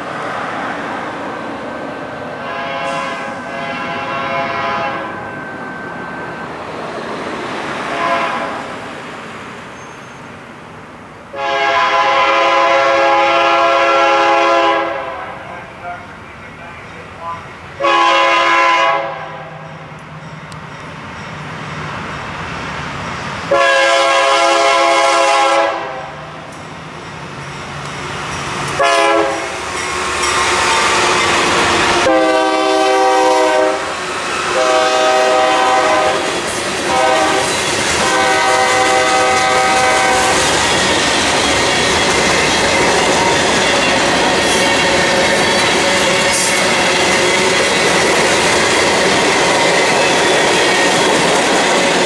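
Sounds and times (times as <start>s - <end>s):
locomotive air horn blasts: 2.4s - 5.2s, 7.9s - 8.6s, 11.3s - 15.4s, 17.8s - 19.6s, 23.5s - 26.2s, 28.8s - 29.6s, 32.0s - 33.9s, 34.5s - 40.4s
locomotives rumbling: 35.8s - 52.0s
train wheels clicking over rail joints: 36.2s - 52.0s.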